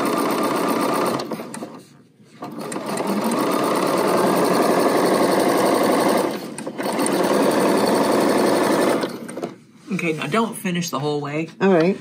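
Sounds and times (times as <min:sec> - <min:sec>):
sewing machine stitching: 0:00.0 - 0:01.8, 0:02.4 - 0:09.6.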